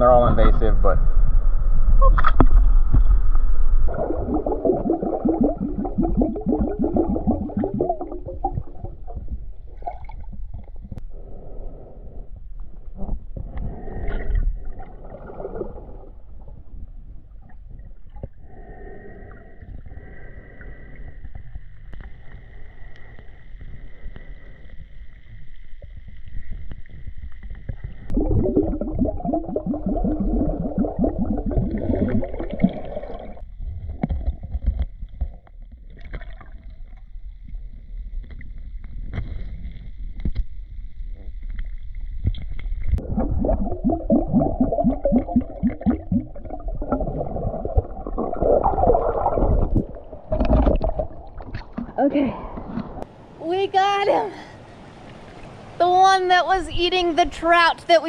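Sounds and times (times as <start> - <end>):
muffled underwater stream: 0.0 - 53.4
rapid bubbling gurgles: 3.8 - 11.0, 13.4 - 21.4, 25.9 - 34.6, 42.8 - 53.1.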